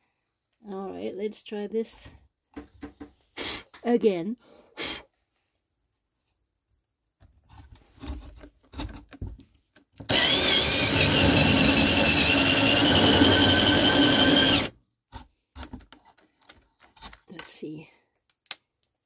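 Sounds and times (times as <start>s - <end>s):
drill with hole saw cutting wood: 10.1s - 14.7s.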